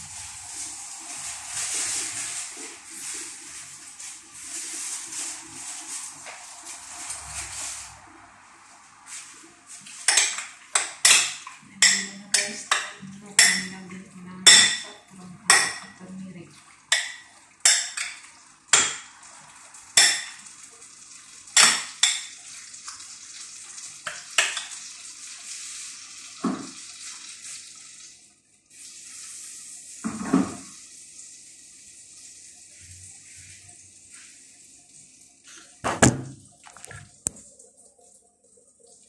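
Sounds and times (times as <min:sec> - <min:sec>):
steady hiss: 0:00.0 - 0:12.9.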